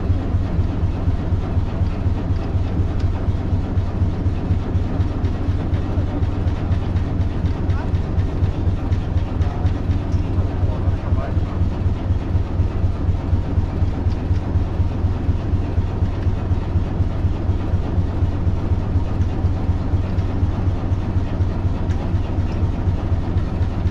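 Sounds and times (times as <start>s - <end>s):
boat engine chugging: 0.0s - 23.9s.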